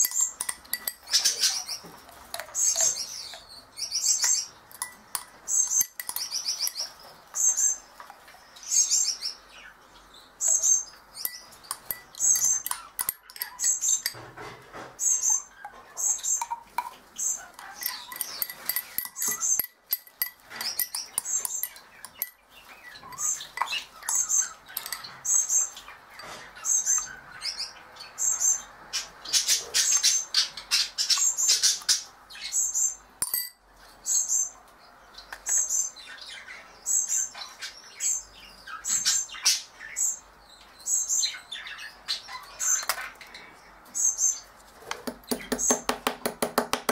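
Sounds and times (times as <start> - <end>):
spoon clicking in a glass: 0.0 - 1.4, 2.3 - 3.0, 4.2 - 6.9, 11.2 - 14.2, 16.4 - 17.0, 17.6 - 22.4, 23.1 - 25.4, 33.2 - 33.6
small bird chirping: 0.0 - 14.2, 15.0 - 44.5.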